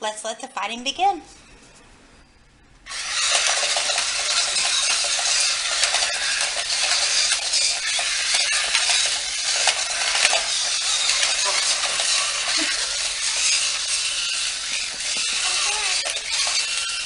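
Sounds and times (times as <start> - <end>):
toy bases whirring on tile floor: 2.8 - 17.0.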